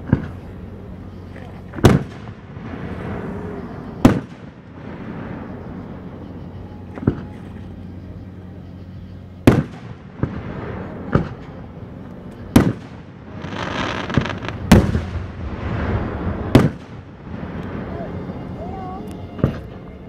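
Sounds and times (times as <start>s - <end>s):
firework shells bursting: 12.3s - 17.7s.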